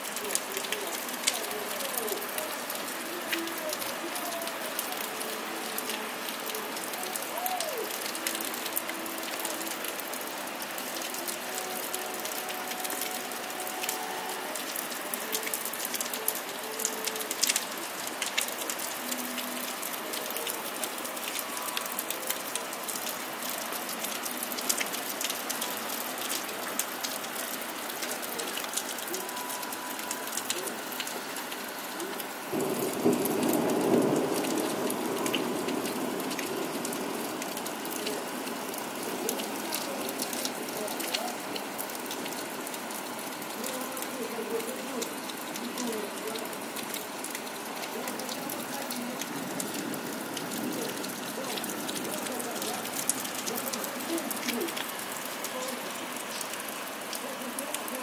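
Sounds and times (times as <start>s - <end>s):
rain on wet pavement: 0.0s - 58.0s
raindrops ticking: 0.0s - 58.0s
thunder rumble: 32.5s - 38.0s.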